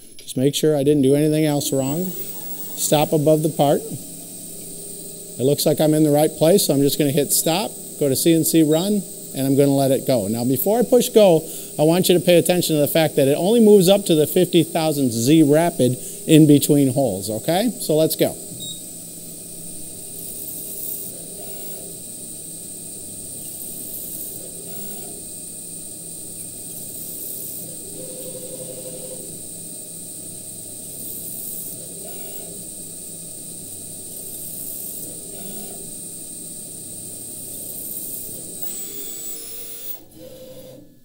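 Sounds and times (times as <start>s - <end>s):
low machine hum: 0.0s - 41.0s
mill spindle whine: 0.0s - 41.0s
short motor whir: 1.7s - 5.5s, 18.4s - 41.0s.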